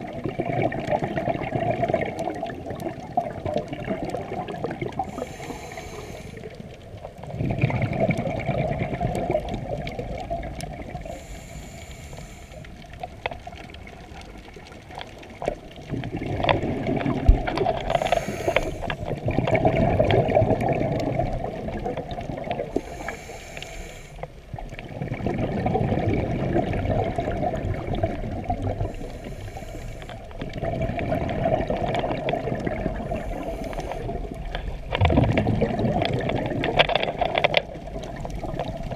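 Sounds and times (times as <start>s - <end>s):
gurgling exhaled bubbles: 0.0s - 38.9s
regulator inhale hiss: 5.0s - 6.7s, 11.0s - 13.0s, 17.8s - 19.1s, 22.7s - 24.3s, 28.8s - 30.4s, 33.0s - 34.3s.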